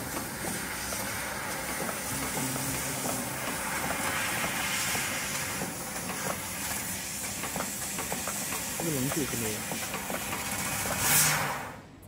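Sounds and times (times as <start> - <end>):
laser cutter gas hiss: 0.0 - 11.9.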